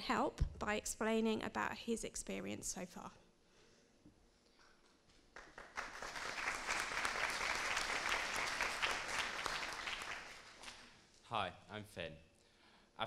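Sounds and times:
audience applauding: 5.3 - 10.9.

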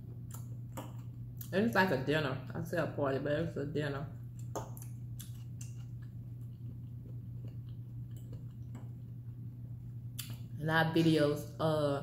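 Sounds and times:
person chewing food: 0.0 - 1.5, 4.3 - 10.5.

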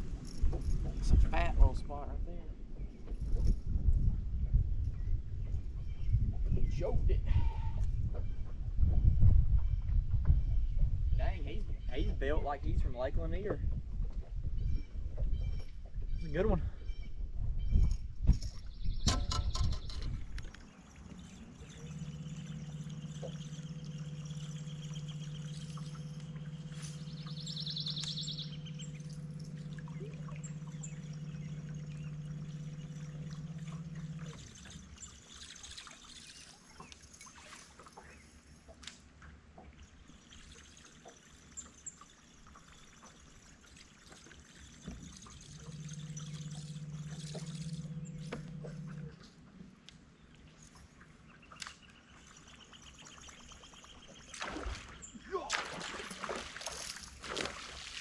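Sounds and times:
electric trolling motor humming: 0.0 - 3.8, 18.7 - 55.1
water lapping against boat hull: 0.0 - 58.0.

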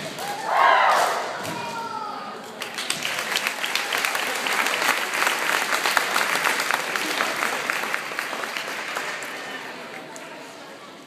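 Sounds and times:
crowd applauding: 2.6 - 10.1.

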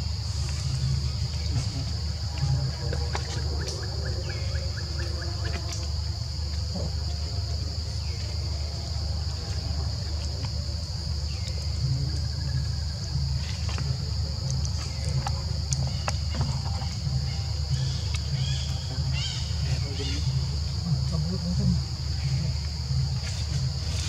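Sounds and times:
insects droning: 0.0 - 24.0.

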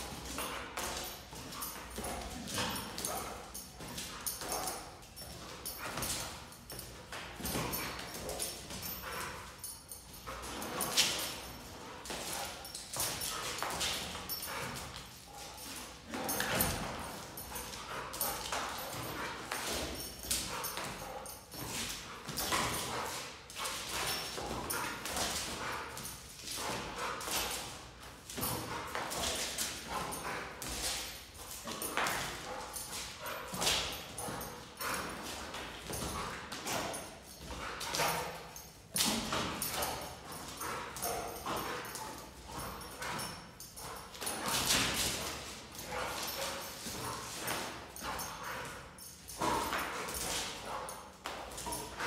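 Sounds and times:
dog paws scuffing on concrete: 39.2 - 52.0.

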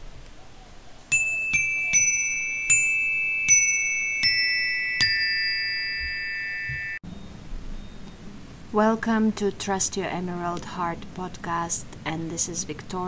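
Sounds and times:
bright chime notes: 1.1 - 7.2.

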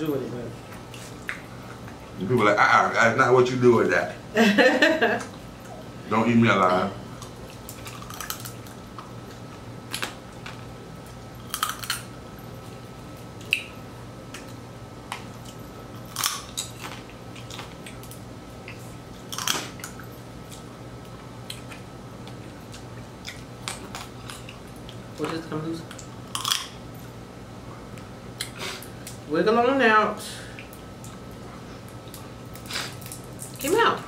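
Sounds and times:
steady low hum: 0.0 - 34.0
crab shells cracking: 7.2 - 12.1, 16.0 - 20.0, 25.9 - 26.8.

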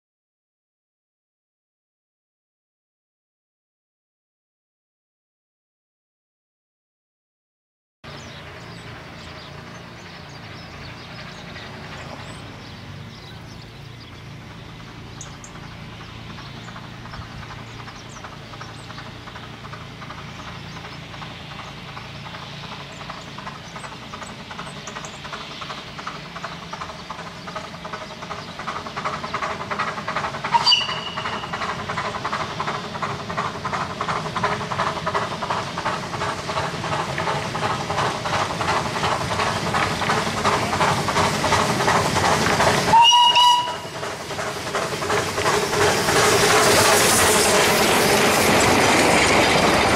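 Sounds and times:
steam locomotive exhaust beats: 8.1 - 49.9
steam train whistle blast: 30.5 - 31.6, 42.9 - 44.0.

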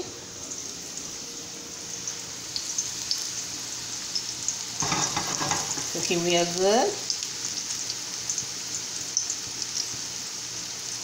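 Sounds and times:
slices sizzling in hot oil: 0.0 - 11.0.

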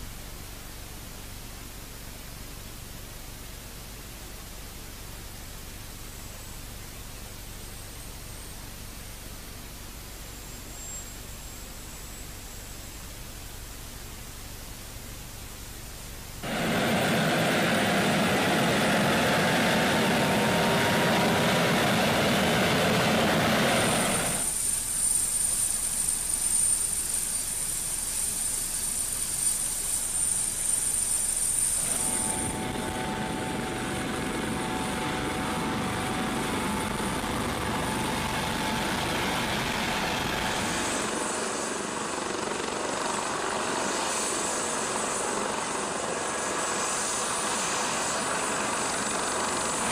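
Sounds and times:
faint hiss: 0.0 - 49.9
high turbine whine: 15.9 - 49.9
helicopter engines and rotor: 16.4 - 49.9.

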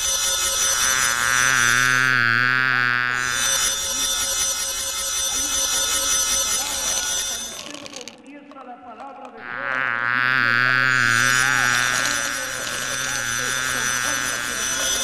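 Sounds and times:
high buzzing texture: 0.0 - 8.2, 9.4 - 15.0
loud warbling buzz: 0.0 - 8.2, 9.4 - 15.0
low steady hum: 9.4 - 15.0.

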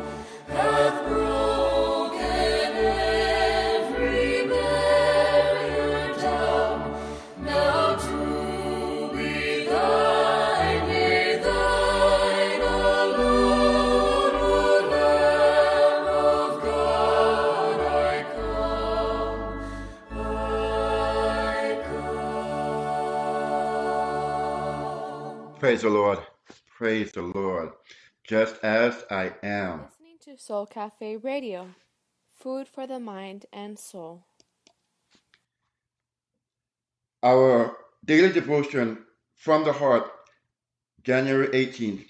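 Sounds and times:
choir singing a hymn: 0.0 - 25.6
sustained bass notes: 0.0 - 25.6.

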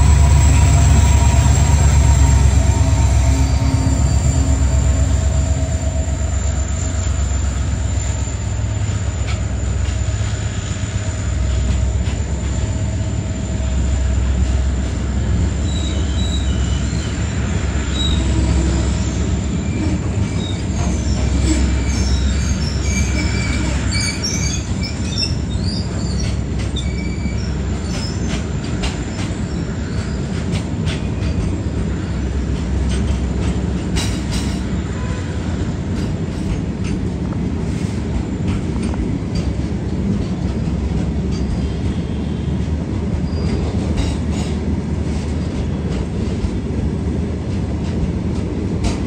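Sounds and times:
train wheels rumbling on rail: 0.0 - 49.0
high wheel squeals: 0.3 - 10.3, 15.6 - 28.4.

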